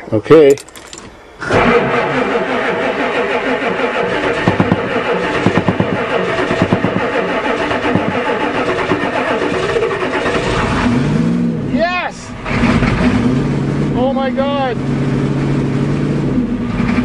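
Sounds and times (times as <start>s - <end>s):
diesel engine cranking on starter: 0.5s - 17.0s
engine knocking as it catches: 1.5s - 10.9s.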